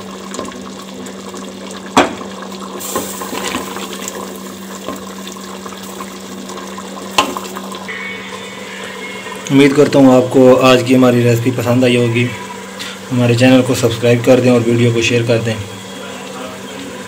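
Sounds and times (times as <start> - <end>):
low hum: 4.3 - 16.4.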